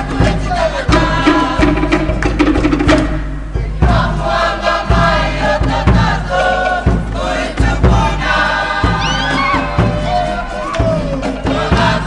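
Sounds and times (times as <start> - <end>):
group singing and chanting: 0.0 - 12.0
low drum beats: 0.0 - 12.0
high rising cries: 8.8 - 11.7.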